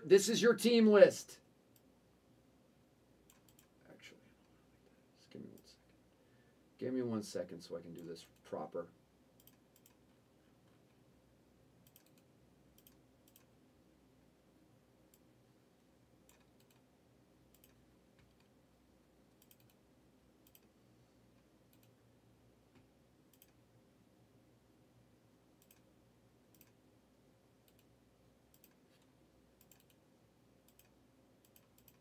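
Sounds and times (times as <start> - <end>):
faint steady hum: 0.0 - 32.0
keyboard and mouse clicks: 3.3 - 3.7, 9.4 - 10.0, 11.8 - 13.5, 16.3 - 16.9, 17.5 - 18.5, 19.4 - 19.8, 20.4 - 20.7, 21.7 - 22.0, 22.7 - 23.6, 25.6 - 25.9, 26.5 - 26.8, 27.6 - 27.9, 28.5 - 30.0, 30.7 - 32.0.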